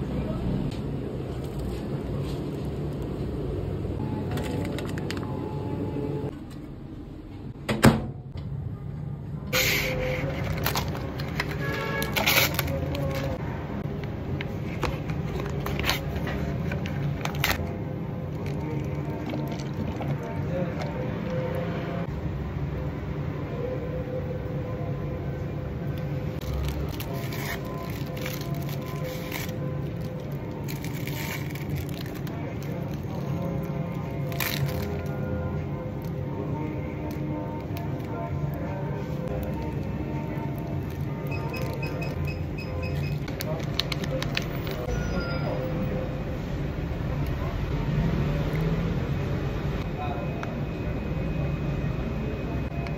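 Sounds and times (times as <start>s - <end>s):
crackly plastic rustle: 10.1s - 13.4s, 26.4s - 35.2s, 43.1s - 44.9s
plastic packet crinkling: 10.2s - 13.4s, 18.3s - 21.0s, 26.4s - 35.1s, 43.3s - 44.8s.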